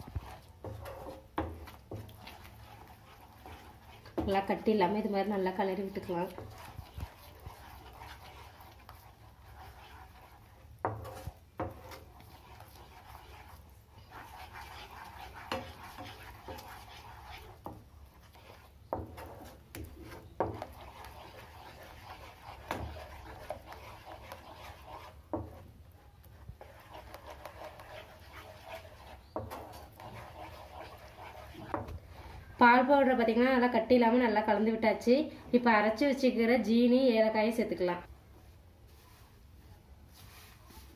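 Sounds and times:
spatula scraping frying pan: 0.0s - 32.4s.

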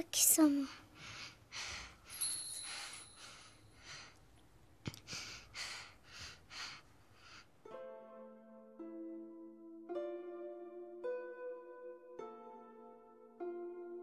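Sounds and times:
girl breathing and sighing: 0.4s - 4.2s.

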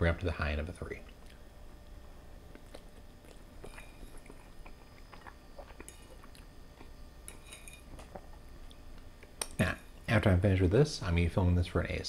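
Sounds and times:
faint chewing: 1.0s - 9.7s
wet mouth clicks: 2.5s - 6.9s.

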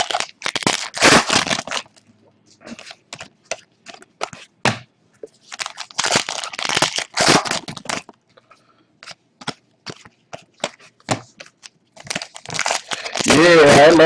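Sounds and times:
plastic wrapper crinkling: 0.0s - 2.1s, 5.4s - 8.2s, 9.0s - 14.0s.

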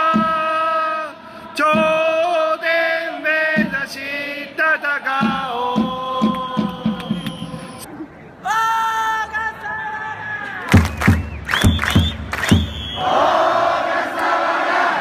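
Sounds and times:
crowd chanting: 0.9s - 6.9s, 12.9s - 15.0s.

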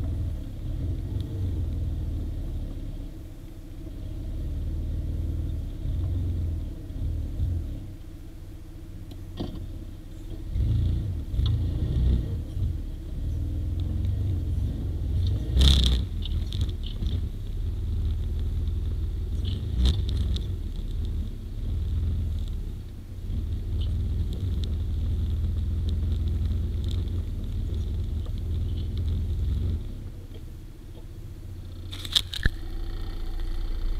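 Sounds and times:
quad engine rumbling: 0.0s - 33.9s.

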